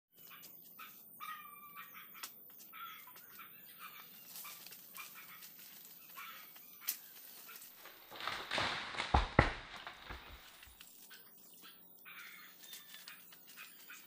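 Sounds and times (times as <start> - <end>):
high-pitched animal cries: 0.3 - 5.5.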